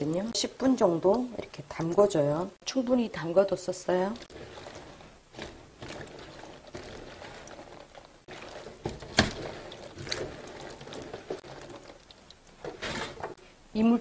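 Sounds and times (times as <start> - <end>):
water sloshing in a bowl: 2.9 - 13.4.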